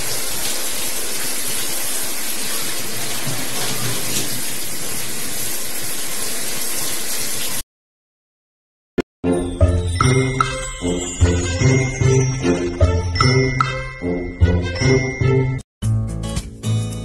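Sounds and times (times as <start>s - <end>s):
tap water running into sink: 0.0s - 7.6s.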